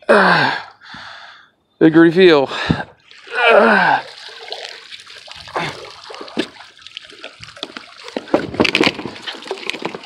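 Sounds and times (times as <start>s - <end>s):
water splashing and dripping: 3.0s - 10.0s.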